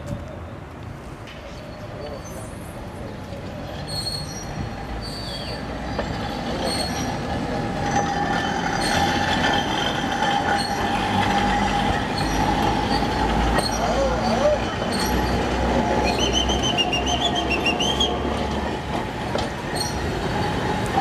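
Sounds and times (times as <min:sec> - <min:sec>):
tram rumbling past: 0:00.0 - 0:21.0
high-pitched wheel squeal: 0:03.8 - 0:18.3, 0:19.7 - 0:20.1.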